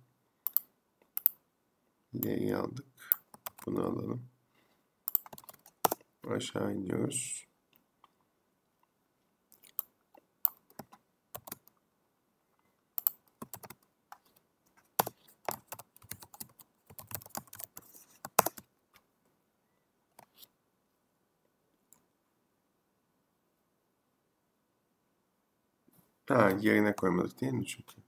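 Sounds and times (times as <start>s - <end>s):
computer keyboard typing: 0.5s - 1.4s, 3.1s - 3.7s, 5.1s - 6.0s, 10.5s - 11.8s, 13.0s - 14.4s, 15.0s - 18.7s.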